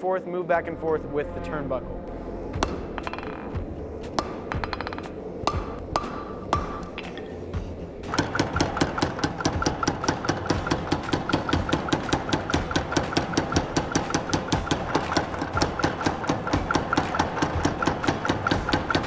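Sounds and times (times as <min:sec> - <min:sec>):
power hammer striking steel: 0:04.1 - 0:07.2, 0:08.1 - 0:19.0.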